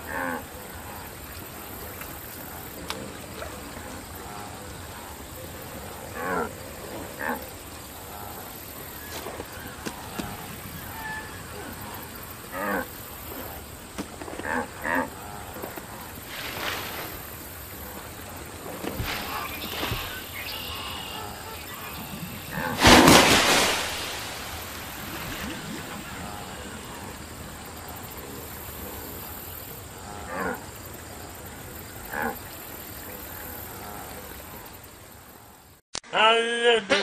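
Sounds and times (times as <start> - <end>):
faint steady ambience: 0.0 - 35.8
loud noisy burst: 22.8 - 26.0.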